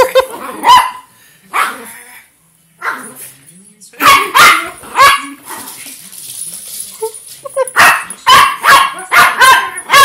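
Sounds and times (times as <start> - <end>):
dog barking: 0.6 - 1.9, 2.8 - 3.2, 4.0 - 5.4, 7.8 - 10.0.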